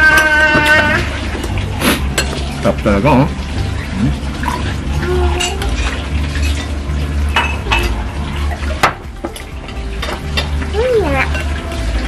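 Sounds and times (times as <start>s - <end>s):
spoon and fork clinking on glass bowl: 5.4s - 8.0s.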